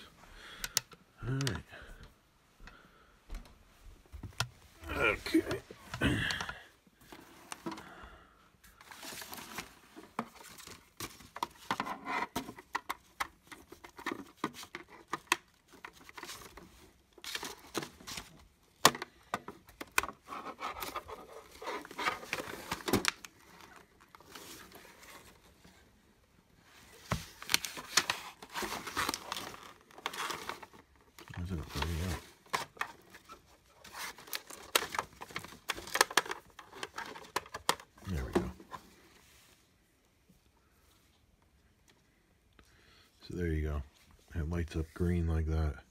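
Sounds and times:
rustling: 0:08.6 - 0:42.2.

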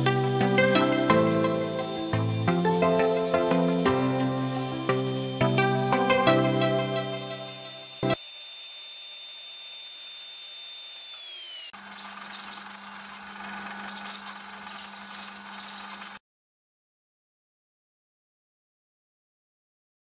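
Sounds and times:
belt sander humming: 0:00.0 - 0:15.0
power drill boring into wood: 0:06.6 - 0:16.2.

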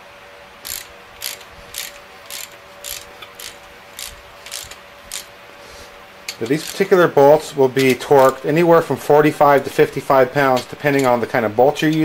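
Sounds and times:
ratchet wrench clicking: 0:00.6 - 0:05.3, 0:06.3 - 0:06.9.

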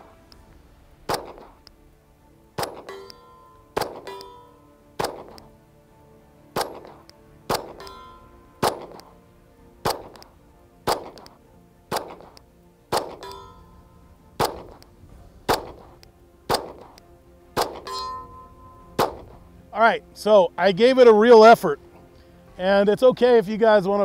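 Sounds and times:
pistol shots: 0:01.1 - 0:01.7, 0:02.6 - 0:03.2, 0:03.8 - 0:04.4, 0:05.0 - 0:05.5, 0:06.5 - 0:08.0, 0:08.6 - 0:09.1, 0:09.8 - 0:13.4, 0:14.4 - 0:14.9, 0:15.5 - 0:17.0, 0:17.6 - 0:18.0, 0:19.0 - 0:19.4
bullet ringing steel target: 0:02.6 - 0:05.5, 0:06.6 - 0:09.1, 0:09.8 - 0:10.3, 0:11.9 - 0:13.8, 0:14.4 - 0:14.8, 0:17.6 - 0:19.4.

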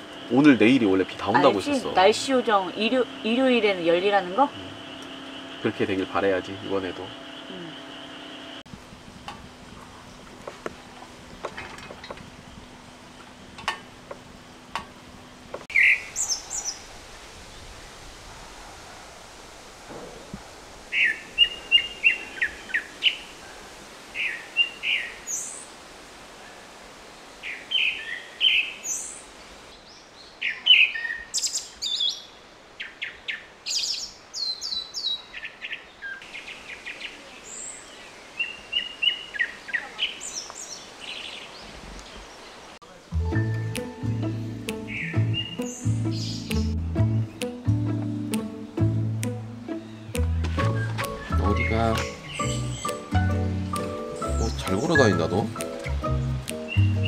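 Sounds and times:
songbirds chirping: 0:00.0 - 0:08.7, 0:09.7 - 0:18.0, 0:20.9 - 0:57.0
low hum: 0:00.0 - 0:15.6.

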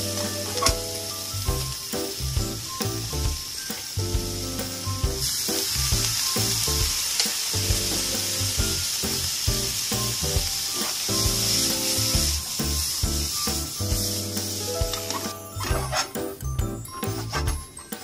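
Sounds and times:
vegetables sizzling in a frying pan: 0:00.0 - 0:16.0
rhythmic background music: 0:00.0 - 0:18.0.

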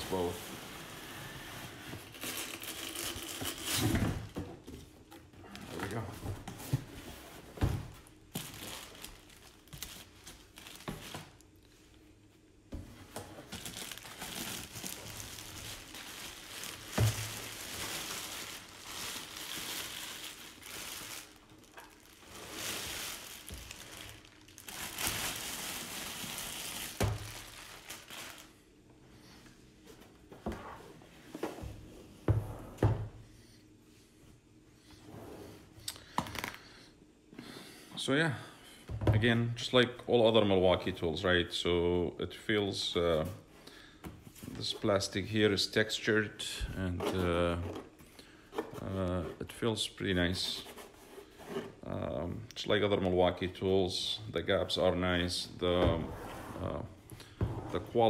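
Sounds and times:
plastic bag crinkling: 0:02.1 - 0:03.8, 0:08.1 - 0:11.5, 0:13.4 - 0:28.6.

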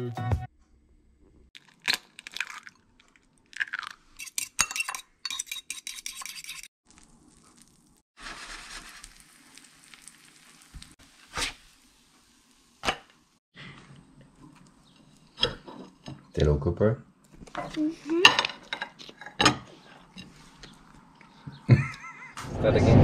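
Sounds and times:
fork beating egg in bowl: 0:04.2 - 0:06.7
bread sizzling in a pan: 0:06.8 - 0:13.4.

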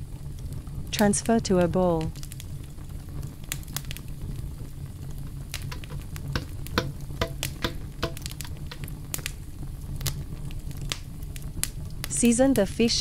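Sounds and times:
steady low hum: 0:04.1 - 0:12.1
utensils tapping a container: 0:05.7 - 0:08.9.

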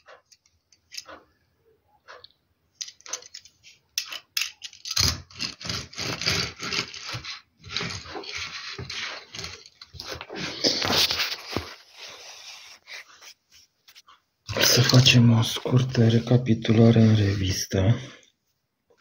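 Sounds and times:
toy car scraping across paper: 0:04.8 - 0:13.4, 0:14.6 - 0:17.8.

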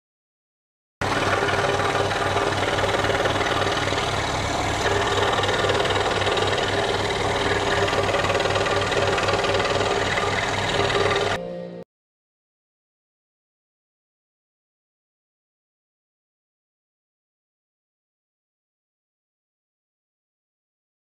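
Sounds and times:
scroll saw cutting: 0:01.0 - 0:11.4.

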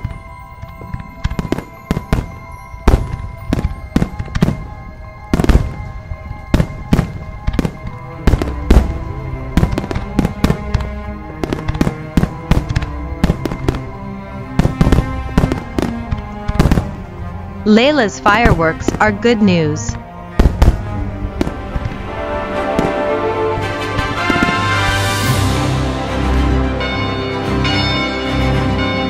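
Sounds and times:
fireworks bangs and pops: 0:00.0 - 0:17.2, 0:20.3 - 0:25.6
background music with sustained notes: 0:00.0 - 0:29.0.

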